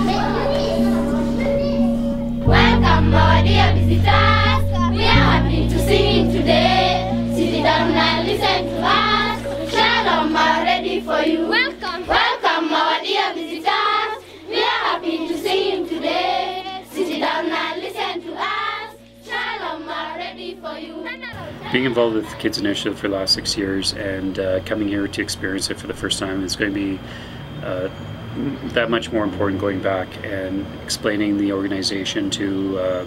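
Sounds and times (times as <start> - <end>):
steady low notes: 0.0 - 12.6
children singing together: 0.0 - 22.4.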